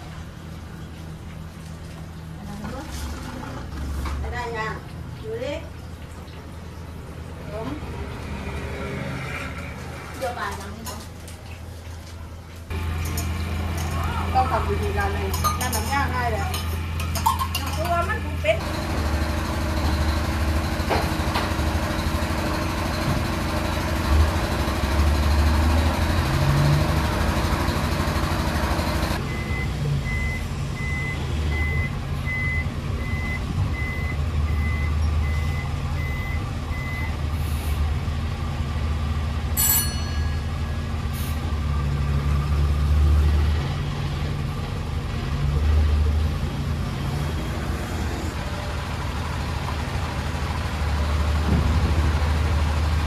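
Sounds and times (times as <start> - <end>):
truck engines rumbling: 0.0 - 53.0
reversing beeper: 29.2 - 37.2.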